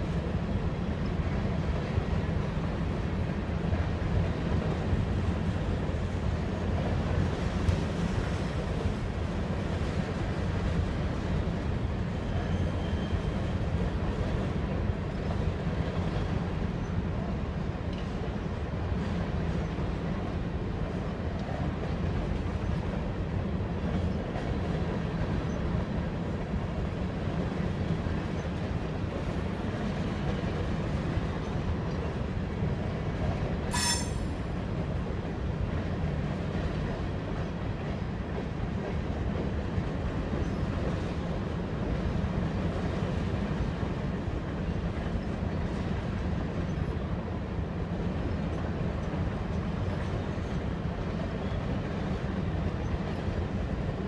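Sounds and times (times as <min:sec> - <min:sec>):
train wheels rumbling on rail: 0:00.0 - 0:54.0
high-pitched metallic ring: 0:33.7 - 0:34.5.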